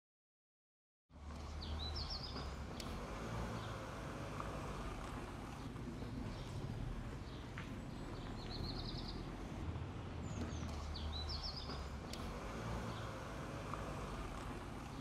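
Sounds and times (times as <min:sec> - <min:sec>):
small bird chirping: 0:01.4 - 0:09.6, 0:10.2 - 0:15.0.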